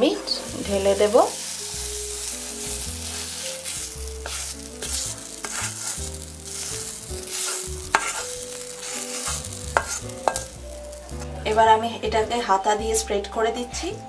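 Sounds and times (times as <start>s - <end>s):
spatula scraping a pan: 0.8s - 11.6s.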